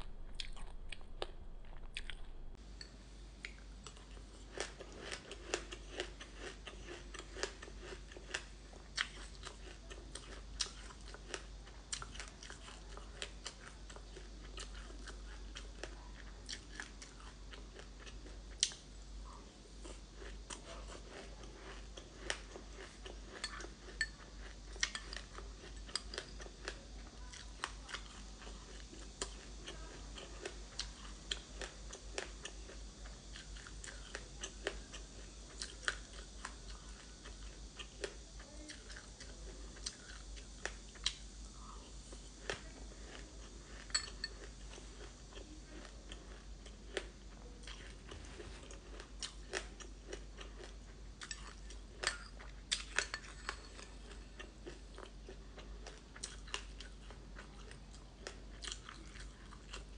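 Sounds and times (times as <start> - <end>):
crunching and chewing seeds: 0.0 - 59.9.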